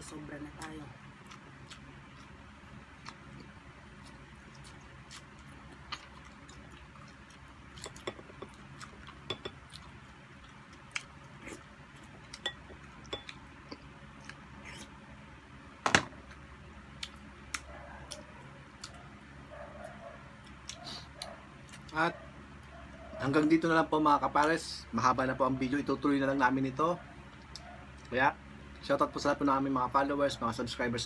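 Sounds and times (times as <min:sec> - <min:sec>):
people chewing and eating: 0:00.6 - 0:15.1, 0:16.2 - 0:29.2
clinks against glass bowls: 0:09.3 - 0:09.6, 0:12.4 - 0:13.4.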